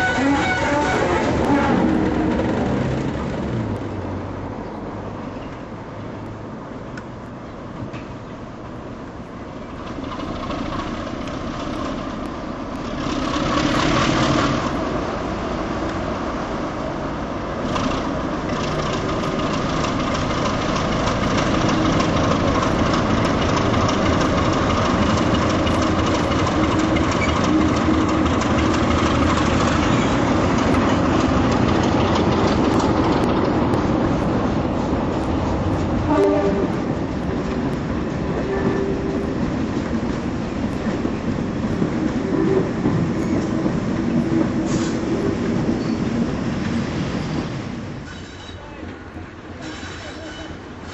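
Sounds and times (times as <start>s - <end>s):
diesel locomotive engine working: 0.0s - 50.9s
coaches clattering over rail joints: 17.7s - 50.6s.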